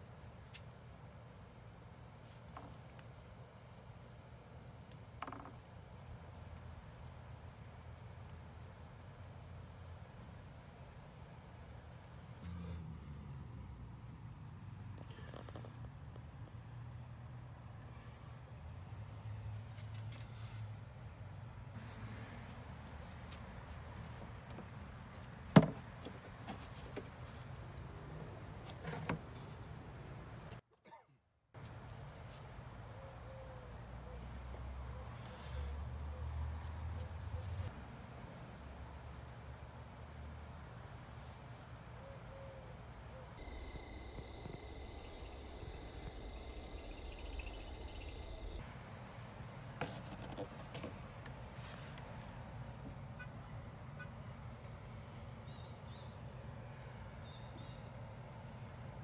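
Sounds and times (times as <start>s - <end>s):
wooden door knocking shut: 25.5s - 25.9s
low steady hum: 37.0s - 59.0s.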